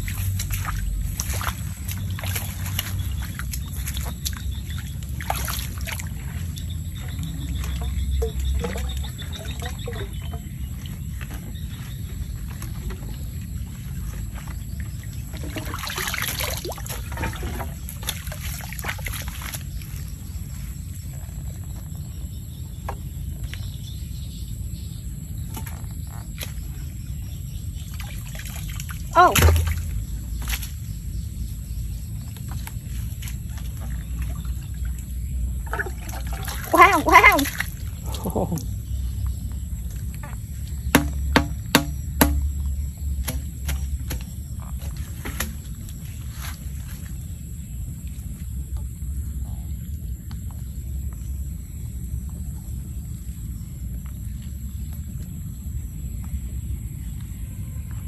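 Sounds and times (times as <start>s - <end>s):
feet splashing in muddy water: 0.0s - 21.2s, 26.0s - 42.5s
water sloshing: 0.0s - 22.4s, 25.5s - 47.4s.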